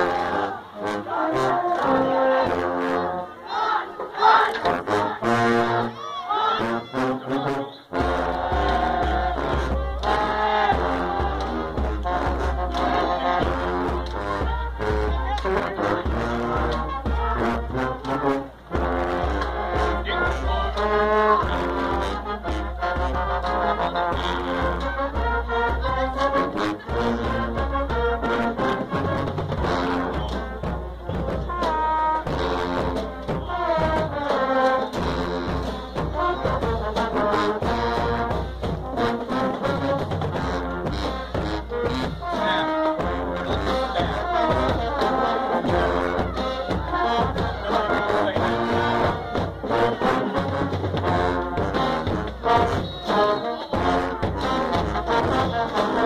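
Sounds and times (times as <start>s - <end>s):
marching band brass playing: 0.0s - 56.0s
trombones: 0.0s - 56.0s.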